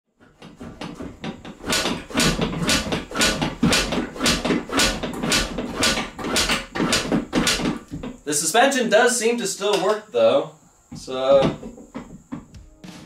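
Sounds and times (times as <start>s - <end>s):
motorbike suspension knocking: 0.3s - 8.2s, 10.9s - 12.7s.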